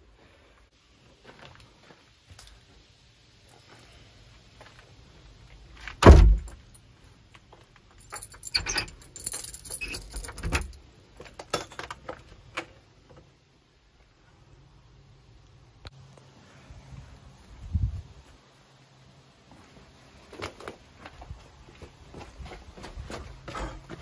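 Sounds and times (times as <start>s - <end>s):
wooden door thudding shut: 6.0s - 6.5s
keys jangling: 7.9s - 10.8s
key turning in lock: 8.0s - 10.8s.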